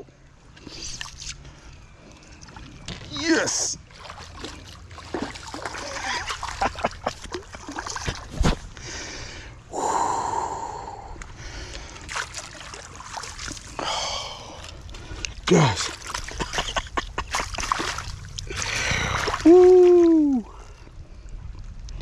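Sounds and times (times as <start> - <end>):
fish splashing at the surface: 3.9 - 8.4, 12.0 - 13.8, 17.3 - 20.1
person breathing heavily: 8.8 - 12.1, 13.8 - 15.4, 18.5 - 19.4.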